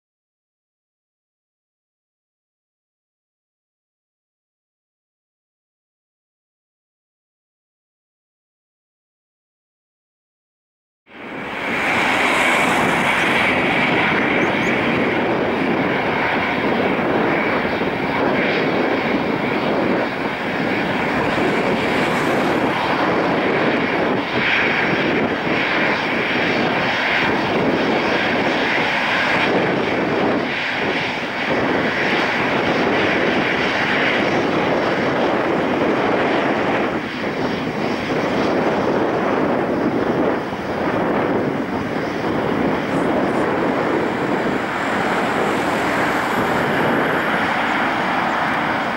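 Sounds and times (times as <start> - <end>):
jet engines rushing and whining: 11.1 - 48.9.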